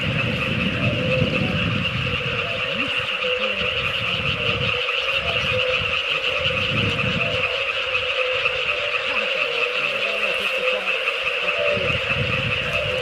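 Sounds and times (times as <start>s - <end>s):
low rumble: 0.0s - 9.2s
frogs trilling: 0.0s - 13.0s
lower frog calls: 0.0s - 13.0s.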